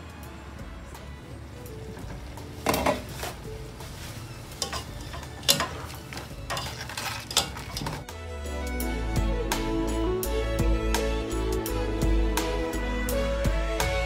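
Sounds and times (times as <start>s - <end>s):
vegetables sizzling: 2.4s - 8.1s
spatula scraping a wok: 2.6s - 8.0s.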